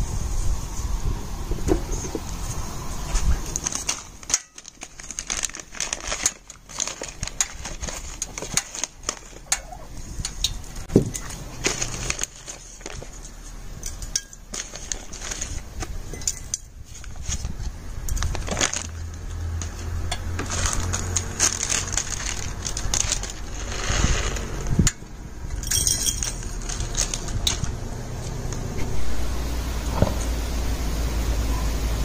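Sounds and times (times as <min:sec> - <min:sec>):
paper packet crinkling: 0:03.2 - 0:13.8, 0:14.4 - 0:24.9, 0:25.7 - 0:29.1
spices clinking in glass jar: 0:25.6 - 0:27.6.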